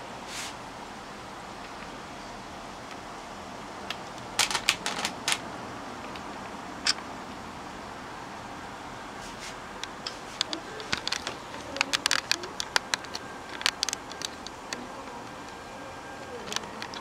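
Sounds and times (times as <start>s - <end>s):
faint hiss: 0.0s - 3.9s
sharp clicks and taps: 9.8s - 15.4s.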